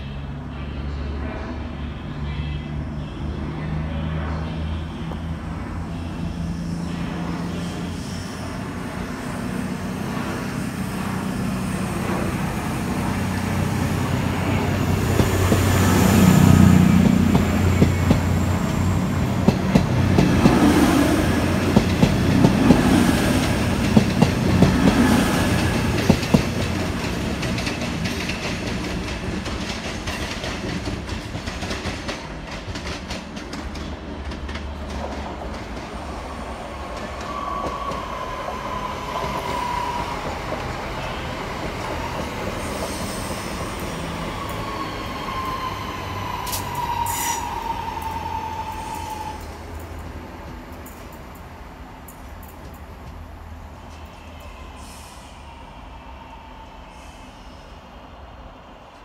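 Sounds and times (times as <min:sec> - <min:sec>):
diesel train engine drone: 0:00.0 - 0:59.0
electric train high squeal: 0:01.8 - 0:19.8, 0:36.6 - 0:49.8, 0:53.9 - 0:58.0
train wheels clacking over rail joints: 0:21.6 - 0:36.0.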